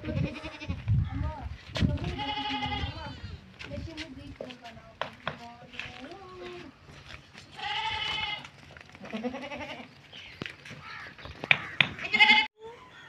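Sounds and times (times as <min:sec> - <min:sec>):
goats bleating: 0:00.0 - 0:00.8, 0:02.0 - 0:03.5, 0:07.5 - 0:10.0, 0:12.0 - 0:12.5.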